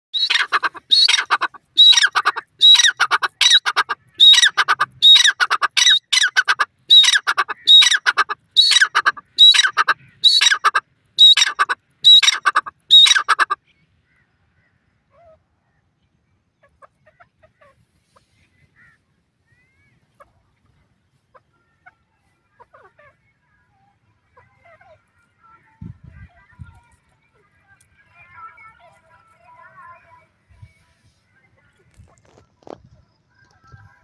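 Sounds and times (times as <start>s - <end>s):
francolin calling: 0.2s - 13.6s.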